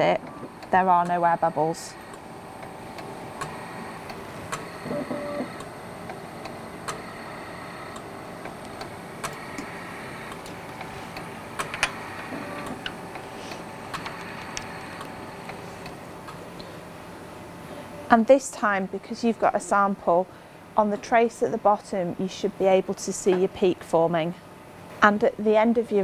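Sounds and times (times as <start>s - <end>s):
lab instrument humming: 0.0s - 18.1s.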